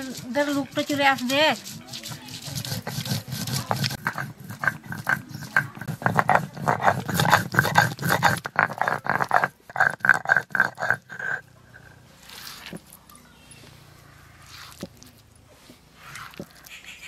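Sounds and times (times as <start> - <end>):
stone roller grating on slab: 0.0 - 13.0, 14.2 - 15.1, 15.7 - 16.7.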